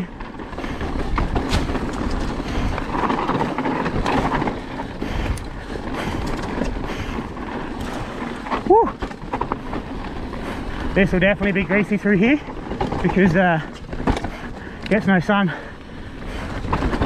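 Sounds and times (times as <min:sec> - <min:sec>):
bike tyres rolling and rattling: 0:00.0 - 0:17.0
sharp knocks from bike: 0:01.1 - 0:02.3.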